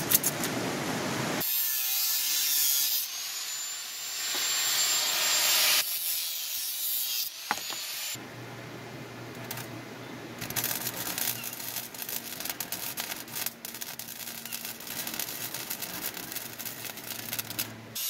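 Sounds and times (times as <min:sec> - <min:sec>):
angle grinder cutting metal: 0:01.4 - 0:08.2, 0:10.7 - 0:18.0.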